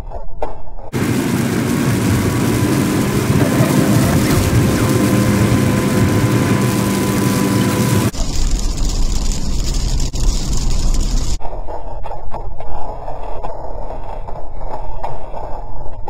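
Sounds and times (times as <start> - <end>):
car driving on highway: 1.0 - 8.2.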